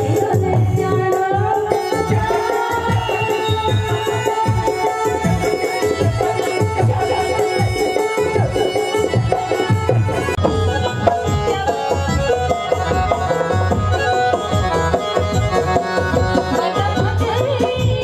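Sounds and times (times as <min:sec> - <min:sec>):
keyboard melody: 0:01.5 - 0:18.0
hand drum beating: 0:03.7 - 0:18.0.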